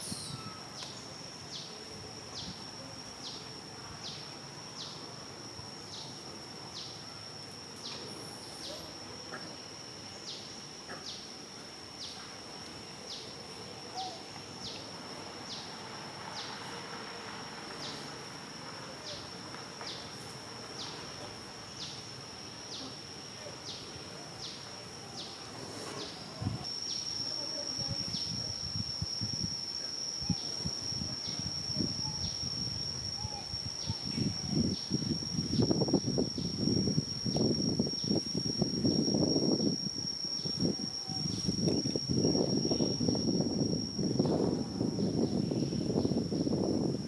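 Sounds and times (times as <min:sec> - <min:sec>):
insect buzzing: 0:00.0 - 0:47.0.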